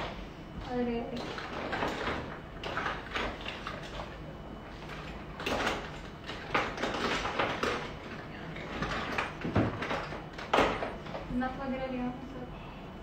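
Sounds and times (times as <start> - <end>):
objects clattering: 1.1 - 11.2.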